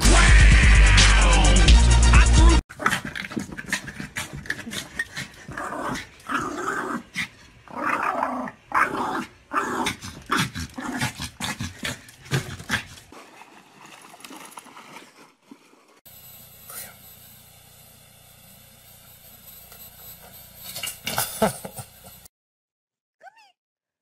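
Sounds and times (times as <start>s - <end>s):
small dog growling and barking: 2.7s - 13.0s.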